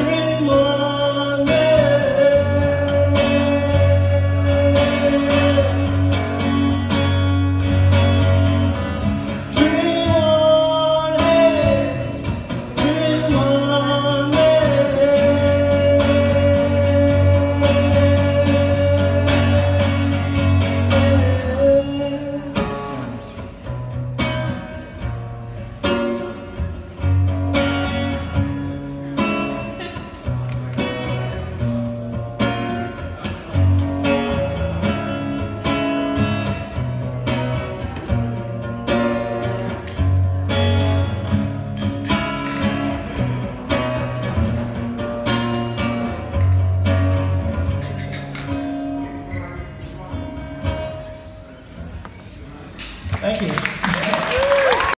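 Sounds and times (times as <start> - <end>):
man singing: 0.0 - 7.1, 9.2 - 23.4
strummed acoustic guitar: 0.0 - 52.7.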